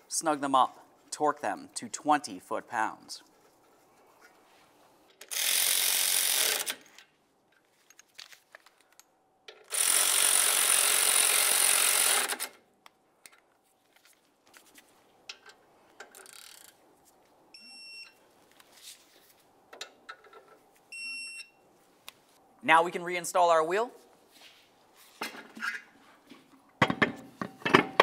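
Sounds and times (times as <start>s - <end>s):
power tool running bolts: 5.2s - 6.9s, 9.6s - 12.6s
short electronic beep: 17.6s - 18.2s.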